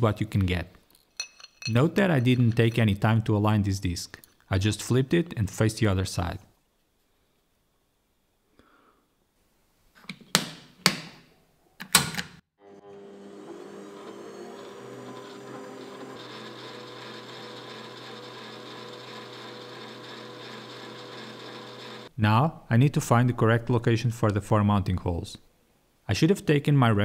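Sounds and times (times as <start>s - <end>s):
lathe tool cutting steel: 12.8s - 22.1s
metal lathe running: 12.8s - 22.1s.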